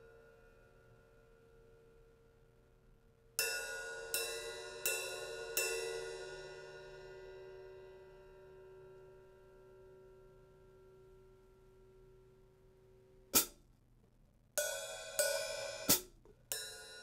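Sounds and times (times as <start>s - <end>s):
hi-hat struck with stick: 13.3s - 13.7s, 14.6s - 17.0s.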